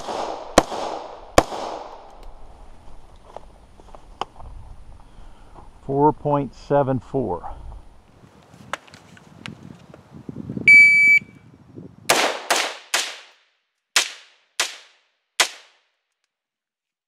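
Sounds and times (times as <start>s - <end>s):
rifle shots: 0.0s - 2.1s, 12.1s - 13.4s, 14.0s - 15.8s
shot timer beep: 10.7s - 11.3s.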